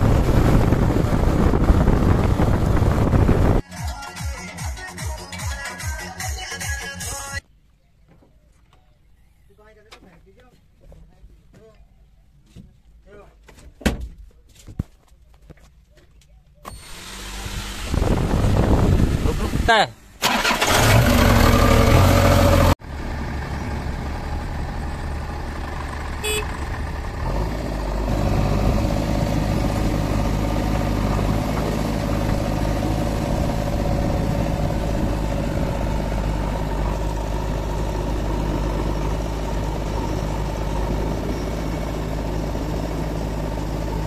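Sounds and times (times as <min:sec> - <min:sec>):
diesel engine idling: 0:20.1 - 0:44.0.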